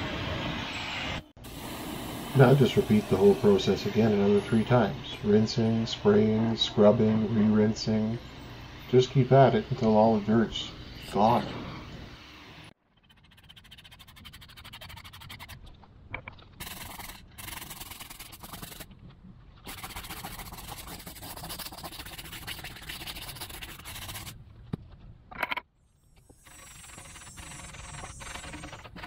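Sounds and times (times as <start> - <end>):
brush scrubbing a tire: 13.0 - 15.6, 16.6 - 19.0, 19.6 - 24.4, 26.4 - 29.0.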